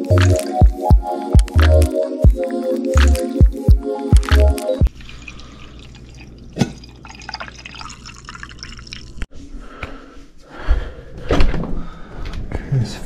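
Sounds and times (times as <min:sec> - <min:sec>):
tea pouring into a mug: 0:04.9 - 0:09.3.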